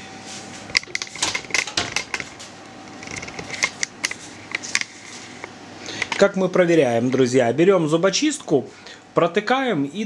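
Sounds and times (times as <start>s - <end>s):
oven door shutting: 0.9s - 2.3s.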